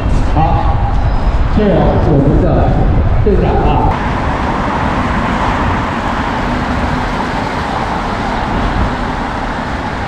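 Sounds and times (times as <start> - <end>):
car engines: 0.0 - 10.0
low traffic rumble: 0.0 - 10.0
tyres on a wet street: 3.8 - 10.0.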